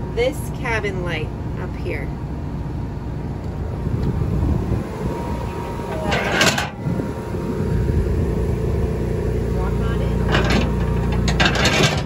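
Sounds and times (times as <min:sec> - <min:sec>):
wind noise on microphone: 0:03.5 - 0:09.2.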